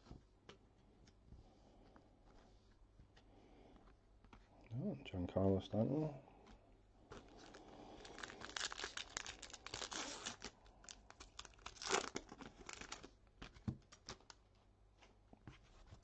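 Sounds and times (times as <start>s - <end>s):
wrapper tearing and crinkling: 7.2s - 13.2s.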